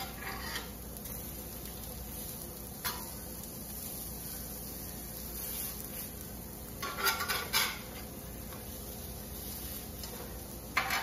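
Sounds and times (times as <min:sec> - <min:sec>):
metal spatula scraping skillet: 0:00.0 - 0:00.8, 0:06.8 - 0:08.0, 0:10.8 - 0:11.0
patties sizzling in oil: 0:00.0 - 0:11.0.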